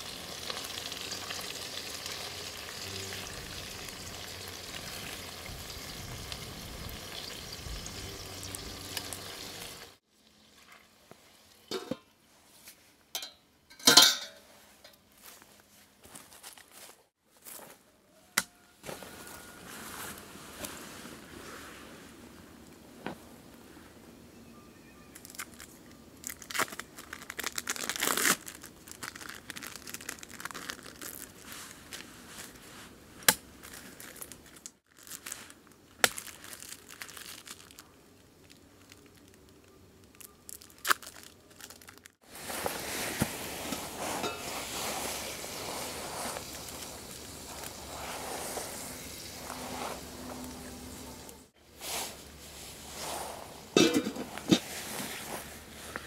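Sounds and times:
packaging crinkling and tearing: 0:25.1 - 0:32.6, 0:33.6 - 0:44.0
steady hiss: 0:42.2 - 0:56.0.

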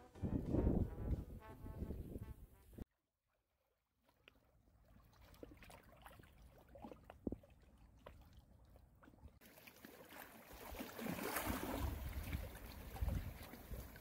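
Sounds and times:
wind on microphone: 0:00.0 - 0:02.8, 0:11.7 - 0:14.0
choppy river water: 0:03.8 - 0:14.0
small waves lapping on rocks: 0:09.4 - 0:14.0.

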